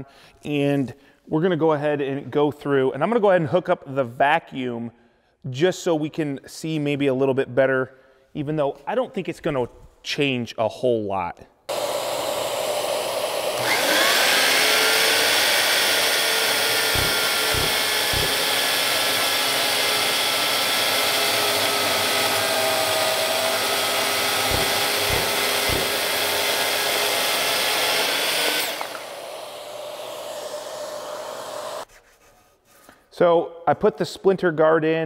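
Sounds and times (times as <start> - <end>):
power saw cutting wood: 11.7 - 31.9
shop vacuum running: 11.7 - 31.9
low knocks: 24.4 - 26.1.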